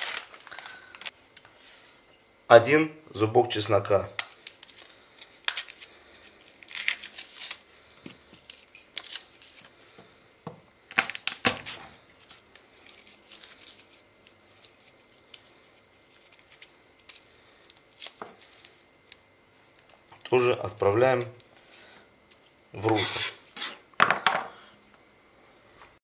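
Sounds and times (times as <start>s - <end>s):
garlic skin crackling and tearing: 4.2s - 9.7s.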